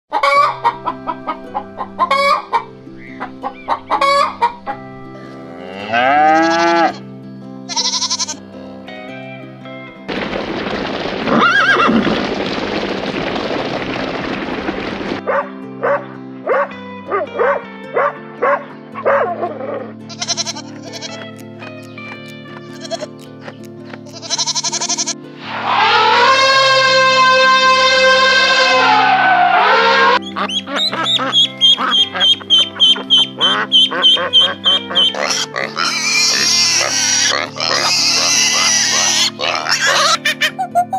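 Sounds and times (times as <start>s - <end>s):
elephant trumpeting: 11.3s - 12.1s, 24.2s - 40.5s
background music with bass line: 15.2s - 40.6s
arching animal call: 22.1s - 40.6s
loud noise: 25.4s - 30.2s
piglet noises: 29.7s - 40.7s
ducklings peeping: 30.1s - 40.4s.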